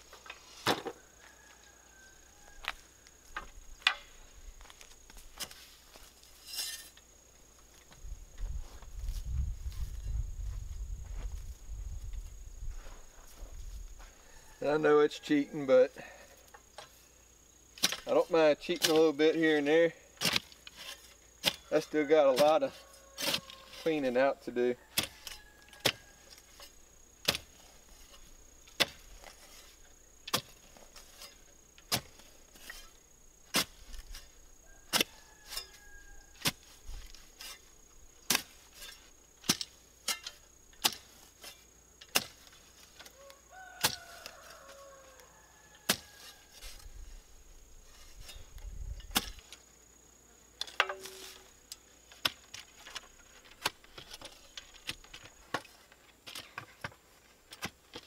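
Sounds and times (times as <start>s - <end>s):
post hole digger striking sandy soil: 17.7s - 24.3s, 24.9s - 43.2s, 43.8s - 44.7s, 45.8s - 46.9s, 47.9s - 49.6s, 50.6s - 58.0s.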